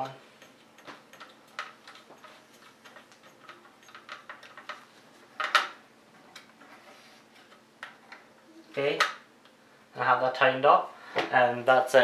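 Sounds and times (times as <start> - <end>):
light clicks and ticks of screws: 0.4 - 4.8.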